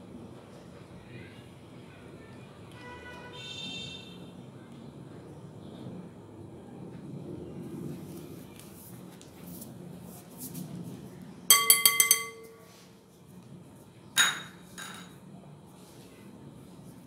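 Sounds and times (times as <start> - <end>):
sieve clinking on glass bowl: 11.5 - 12.8.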